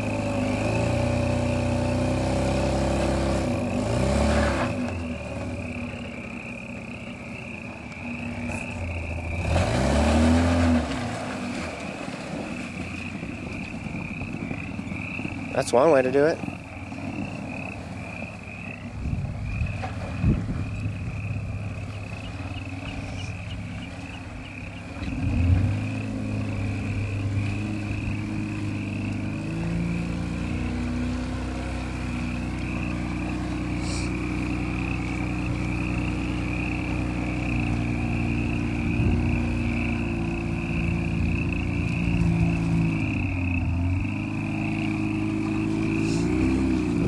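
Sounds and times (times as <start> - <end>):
truck engine running: 0.0 - 47.0
high pulsing animal chorus: 12.5 - 30.8.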